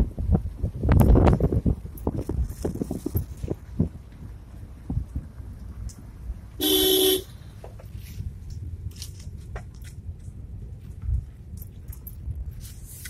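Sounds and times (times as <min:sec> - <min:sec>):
car driving rumble: 0:00.0 - 0:13.0
car horn: 0:06.6 - 0:07.4.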